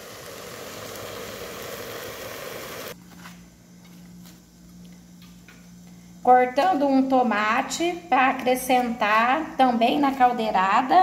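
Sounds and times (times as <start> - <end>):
salt pouring into a pot: 0.0 - 3.0
low steady hum: 0.0 - 11.0.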